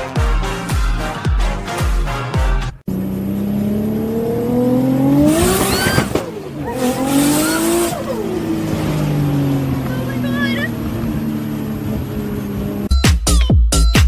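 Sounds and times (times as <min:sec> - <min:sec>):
car engine revving: 0:02.9 - 0:12.9
tyre squeal: 0:05.4 - 0:08.6.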